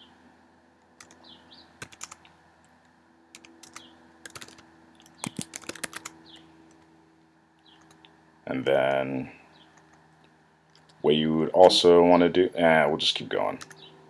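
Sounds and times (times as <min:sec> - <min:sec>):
computer keyboard typing: 0:01.0 - 0:01.2, 0:01.8 - 0:02.3, 0:03.3 - 0:06.8, 0:07.7 - 0:08.1, 0:13.6 - 0:13.9.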